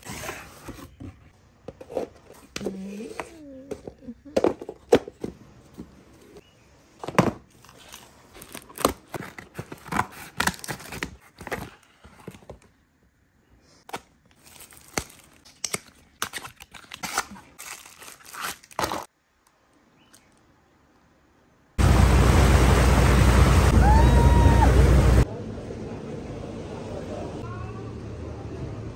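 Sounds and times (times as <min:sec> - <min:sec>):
packaging crinkling and tearing: 0:07.5 - 0:12.7, 0:13.9 - 0:19.1.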